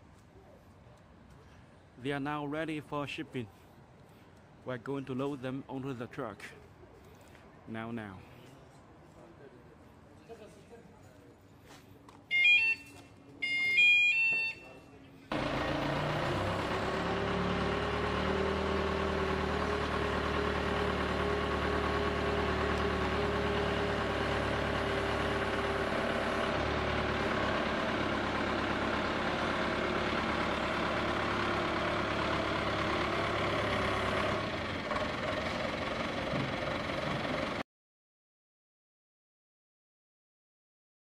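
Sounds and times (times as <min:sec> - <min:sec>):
forklift engine running: 0:15.3 - 0:37.6.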